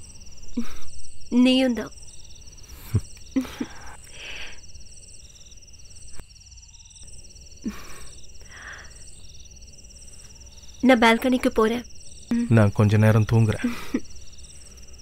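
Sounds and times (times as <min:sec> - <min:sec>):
crickets chirring: 0:00.0 - 0:15.0
soft breaths: 0:02.4 - 0:06.2, 0:07.7 - 0:09.3.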